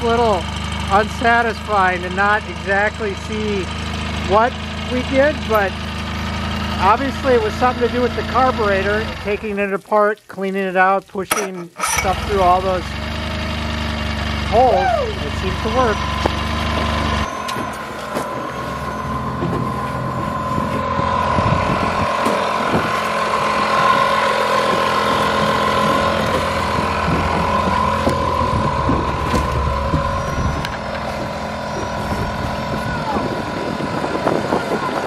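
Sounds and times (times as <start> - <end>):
outboard motor running: 0.0 - 9.8, 11.3 - 35.0
wind: 0.0 - 35.0
water noise: 14.5 - 35.0.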